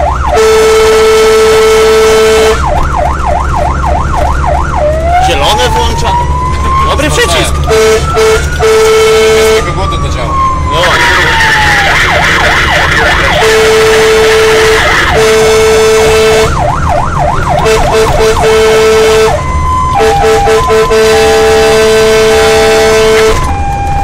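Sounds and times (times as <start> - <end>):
fire engine siren wailing: 0.0 - 24.0
two-note horn blasts: 0.3 - 2.7, 7.5 - 9.8, 13.3 - 16.6, 17.6 - 23.5
short horn toots: 7.6 - 9.6, 20.0 - 23.5.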